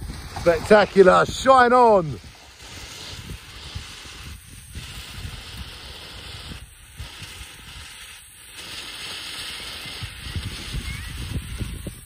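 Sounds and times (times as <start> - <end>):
wind rumbling on microphone: 0.0 - 8.2, 8.8 - 12.0
firework fountain hissing: 0.0 - 12.0.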